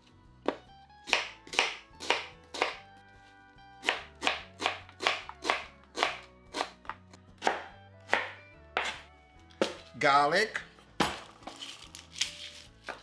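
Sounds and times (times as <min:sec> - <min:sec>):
soft background music: 0:00.0 - 0:13.0
knife chopping on wooden board: 0:00.4 - 0:02.9, 0:03.8 - 0:09.8.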